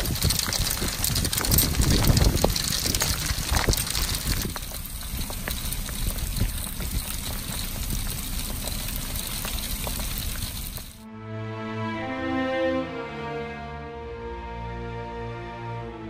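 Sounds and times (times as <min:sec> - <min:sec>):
hail falling on grass: 0:00.0 - 0:11.0
music: 0:11.0 - 0:16.0.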